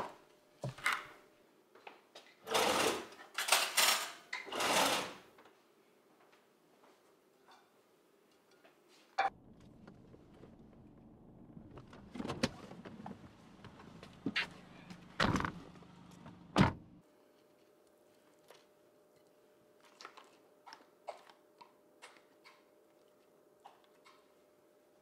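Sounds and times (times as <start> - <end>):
low hum: 9.2 - 17.0.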